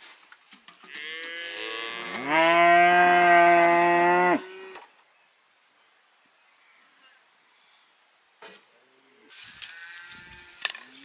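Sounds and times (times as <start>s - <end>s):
cow mooing: 0.9s - 4.8s.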